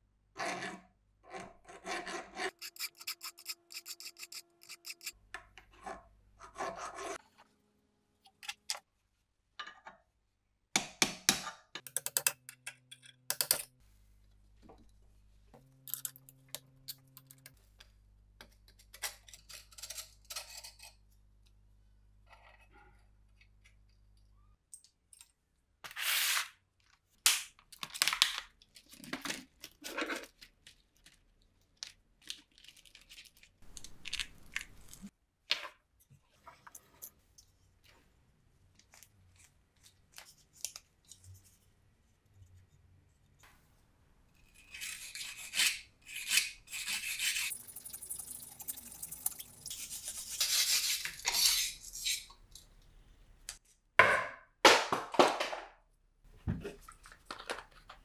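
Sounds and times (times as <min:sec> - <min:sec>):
metal parts and tools scraping: 0:01.4 - 0:07.2, 0:15.7 - 0:17.6, 0:49.7 - 0:52.8.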